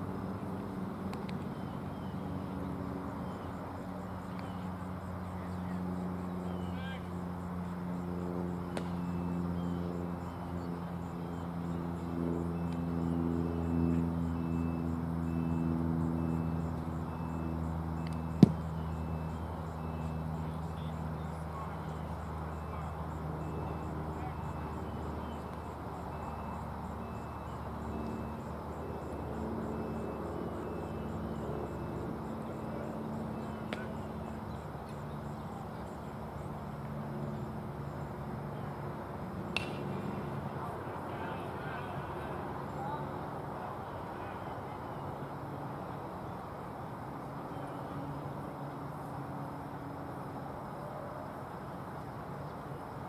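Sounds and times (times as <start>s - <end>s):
road traffic hum: 0.0s - 53.0s
baseball smacking into leather mitt: 18.1s - 18.6s, 39.5s - 40.0s.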